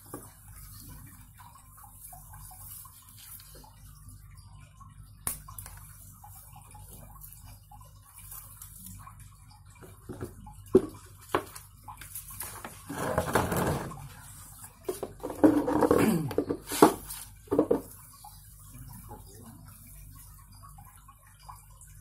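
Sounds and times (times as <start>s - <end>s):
scraping and rustling: 12.4s - 17.9s.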